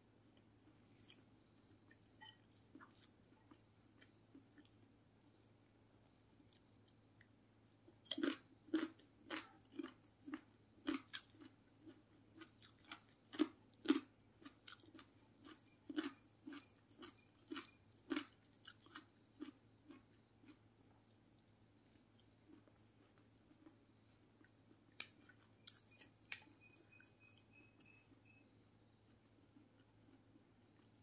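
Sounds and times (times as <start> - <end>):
crunchy chewing: 0.9 - 31.0.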